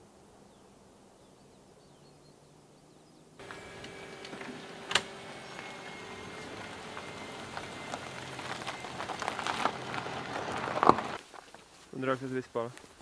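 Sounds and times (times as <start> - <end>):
faint steady whine: 3.4 - 11.2
tyres crackling on wet cobblestones: 3.4 - 11.6.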